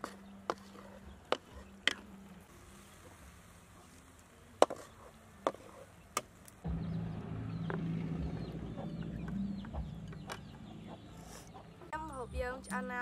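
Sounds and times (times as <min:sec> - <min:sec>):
low hum: 0:06.6 - 0:11.2.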